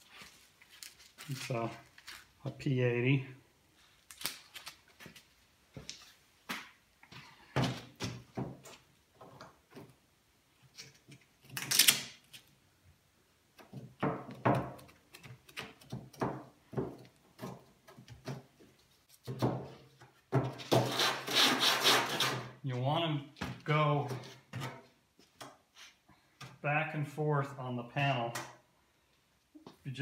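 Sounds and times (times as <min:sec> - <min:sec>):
sandpaper rasping over body filler: 0:20.8 - 0:22.4.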